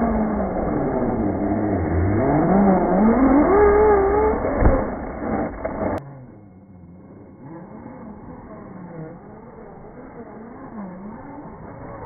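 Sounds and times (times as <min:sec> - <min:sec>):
electric motor whining: 0:00.0 - 0:06.0
thump: 0:04.4 - 0:05.8.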